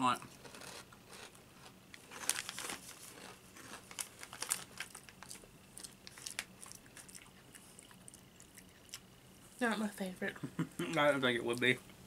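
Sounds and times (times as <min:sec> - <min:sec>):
crunchy chewing: 0:00.2 - 0:09.1
plastic packets crinkling: 0:02.0 - 0:06.8.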